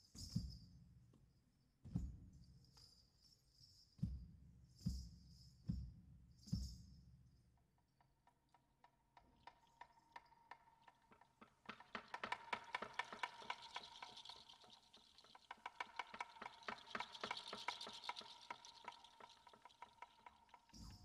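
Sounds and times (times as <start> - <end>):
small bells jingling: 4.7 - 7.1, 9.6 - 21.0.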